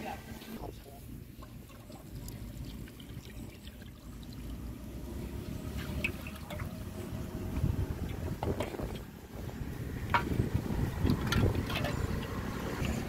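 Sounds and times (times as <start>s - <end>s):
low steady rumble: 0.6s - 13.0s
water sloshing in a metal pot: 1.2s - 13.0s
small splashes: 1.4s - 7.1s.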